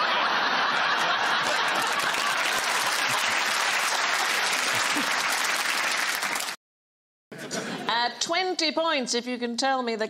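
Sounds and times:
studio audience applauding: 0.2s - 6.6s.

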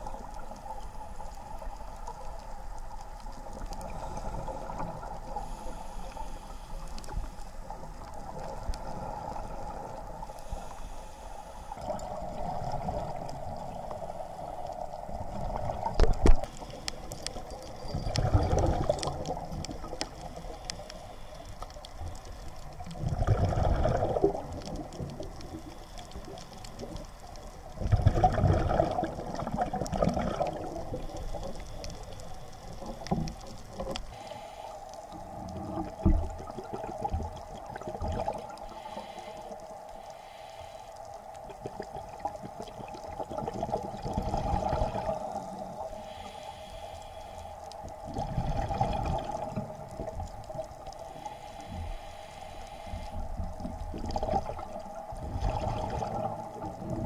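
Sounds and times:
steady underwater hiss: 0.0s - 57.0s
bubbles from diver exhaling: 18.1s - 19.3s, 23.0s - 24.9s, 27.8s - 31.0s, 41.7s - 45.2s, 48.1s - 49.6s, 54.0s - 57.0s.

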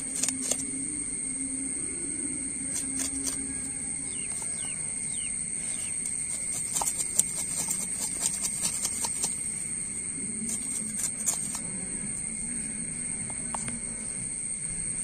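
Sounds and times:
steady high whine: 0.0s - 15.0s
knife scraping fish scales: 5.7s - 9.4s, 10.5s - 11.6s.

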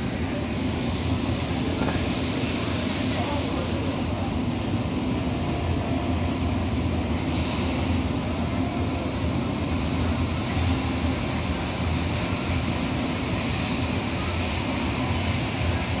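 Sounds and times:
hiss: 7.0s - 8.8s.

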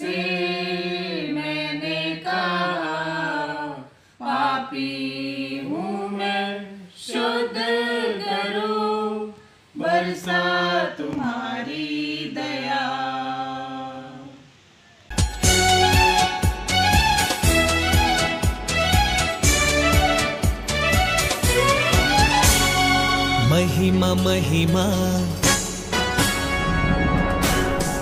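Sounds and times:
group singing a hymn: 0.0s - 14.6s.

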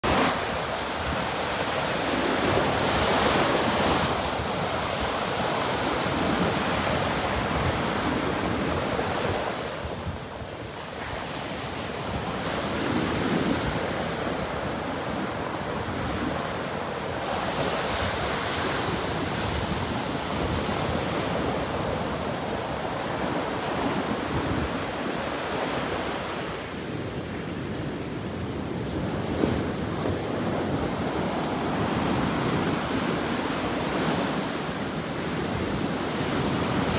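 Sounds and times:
ocean surf breaking on beach: 0.0s - 36.9s.

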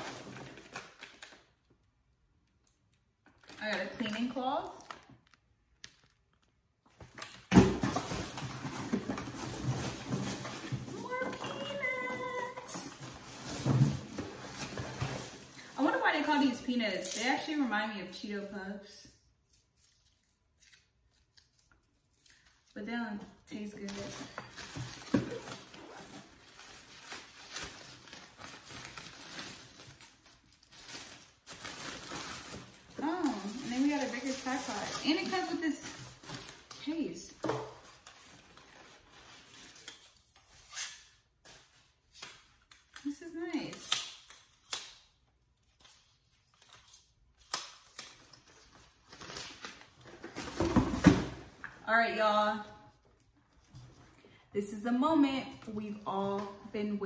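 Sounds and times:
plastic packaging crinkling: 0.0s - 7.4s, 24.1s - 36.9s.

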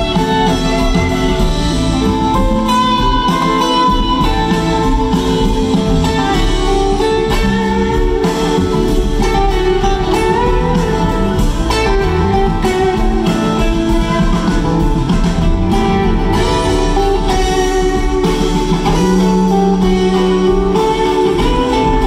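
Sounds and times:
steady drum beat: 0.0s - 22.0s
string band playing: 0.0s - 22.0s.

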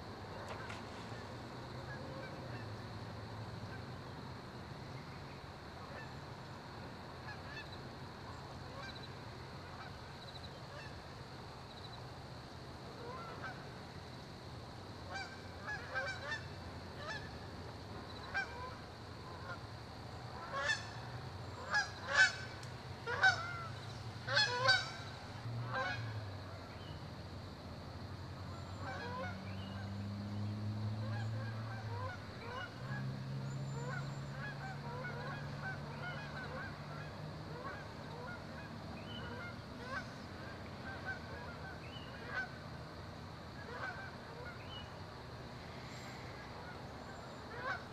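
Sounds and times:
honking bird calls: 21.6s - 26.1s, 33.7s - 40.1s, 47.3s - 47.9s.

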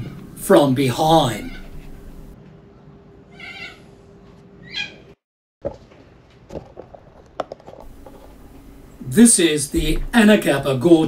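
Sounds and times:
high-pitched animal calls: 1.4s - 2.2s, 3.3s - 3.9s, 4.6s - 5.1s.

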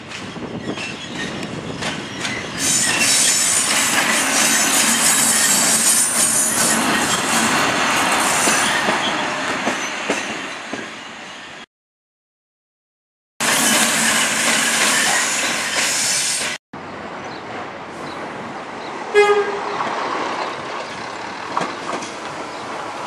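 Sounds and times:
high-pitched wheel squeal: 2.2s - 7.4s.

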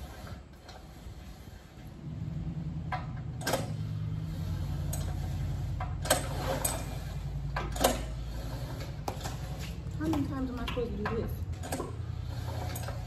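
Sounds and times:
sharp clicks and knocks: 2.8s - 3.9s, 4.8s - 13.0s.

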